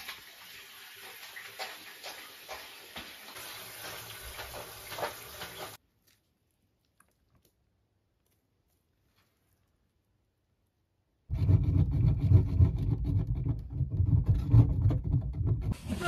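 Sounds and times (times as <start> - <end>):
shower water splashing on tiles: 0.0 - 5.8.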